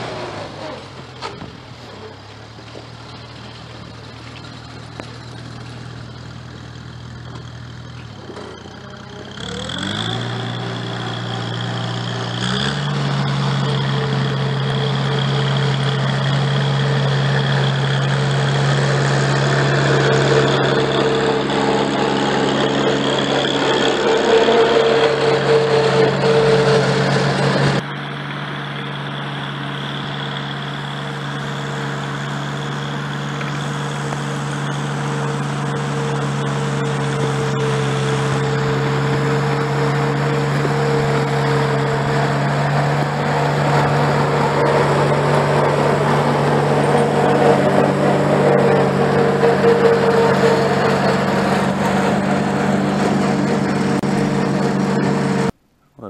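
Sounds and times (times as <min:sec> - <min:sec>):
tractor engine running: 0:00.0 - 0:56.0.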